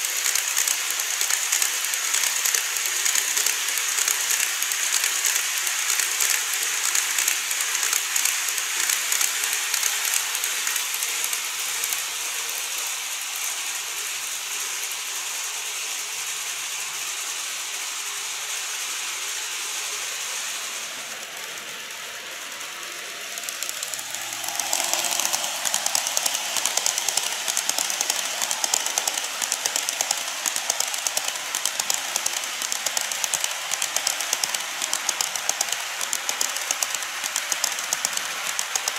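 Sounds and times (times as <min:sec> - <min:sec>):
high hiss: 0:00.0 - 0:38.9
model train wheels clattering: 0:00.0 - 0:38.9.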